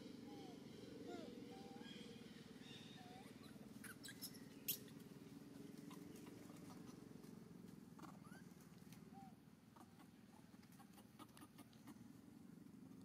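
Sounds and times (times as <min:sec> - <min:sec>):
steady low hum: 0:00.0 - 0:10.7
baby monkey squeaking: 0:03.4 - 0:04.9.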